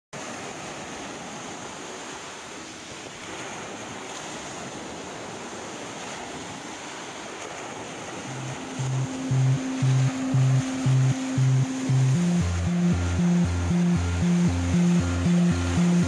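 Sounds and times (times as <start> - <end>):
low musical note: 8.3 - 16.0
steady rushing noise: 8.3 - 16.0.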